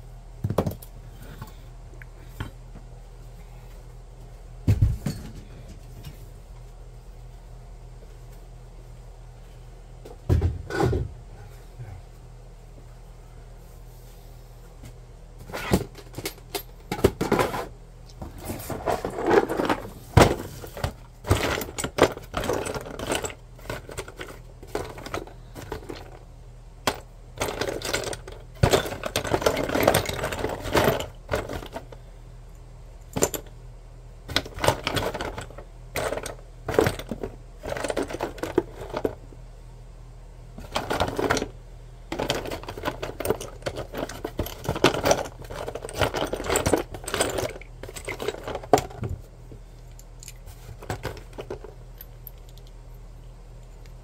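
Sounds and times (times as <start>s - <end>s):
plastic parts clattering in a box: 18.3s - 26.2s, 26.9s - 32.0s, 34.3s - 39.2s, 40.6s - 41.5s, 42.1s - 49.2s, 50.2s - 51.8s.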